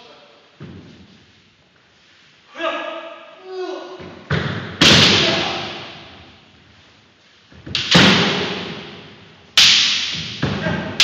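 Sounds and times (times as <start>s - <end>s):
bamboo swords striking armour: 4.3s - 6.2s, 7.7s - 11.0s.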